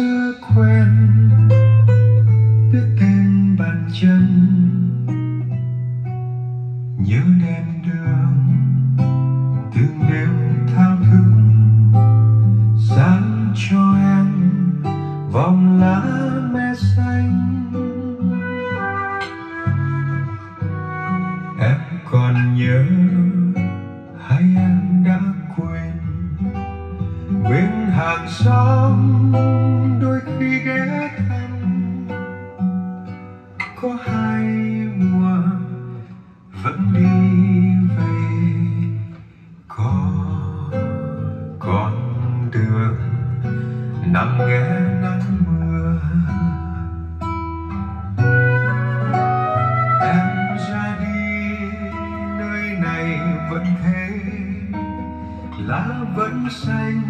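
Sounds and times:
plucked acoustic guitar: 0.0 - 57.0.

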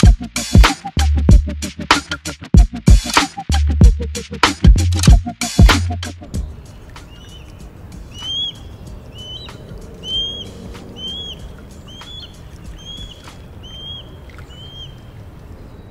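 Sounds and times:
bird chirping: 6.3 - 15.9.

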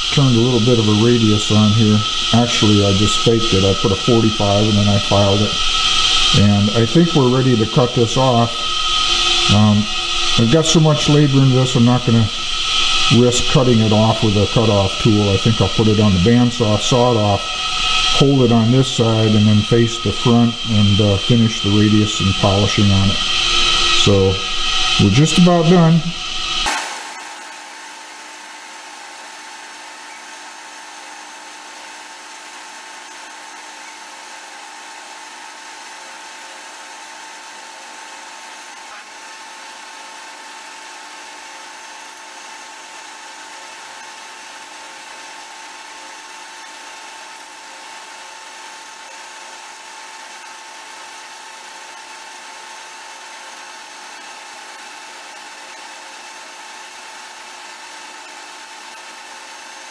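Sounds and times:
metal lathe whining: 0.0 - 26.7.

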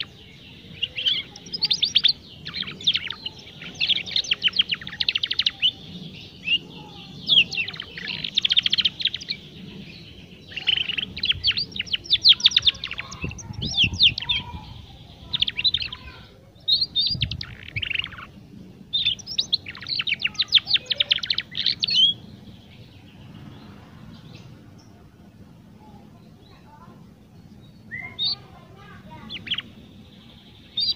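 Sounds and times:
canary twittering: 0.0 - 24.9, 27.7 - 30.9.

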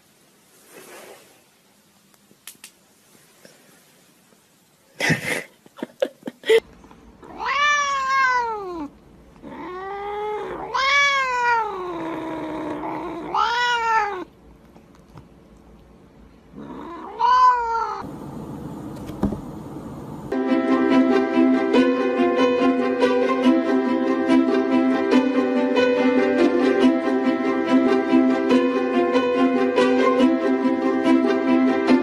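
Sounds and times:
cat meowing: 7.2 - 14.3, 16.6 - 18.0.

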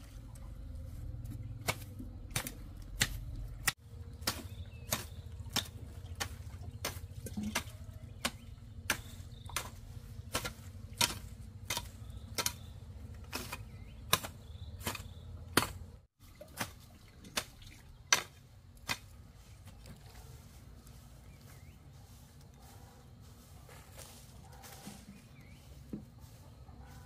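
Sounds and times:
low hum: 0.0 - 16.4.

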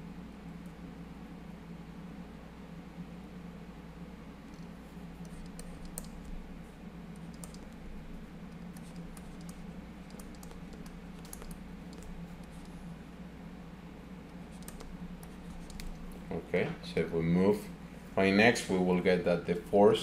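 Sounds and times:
steady low hum: 0.0 - 20.0
stylus tapping on tablet: 7.1 - 7.8, 8.5 - 12.8, 14.5 - 16.0.

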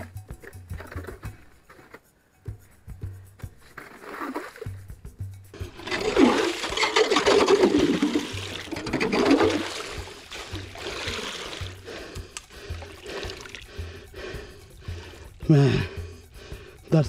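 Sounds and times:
ice auger grinding through ice: 5.6 - 11.6.

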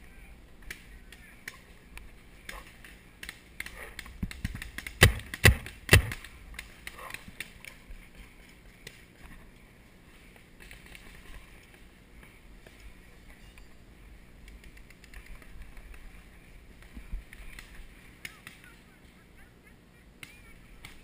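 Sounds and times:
distant paintball marker pops: 2.5 - 7.5.

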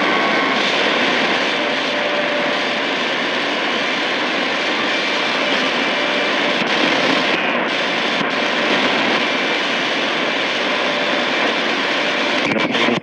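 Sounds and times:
shortwave radio static and hiss: 0.0 - 13.0.

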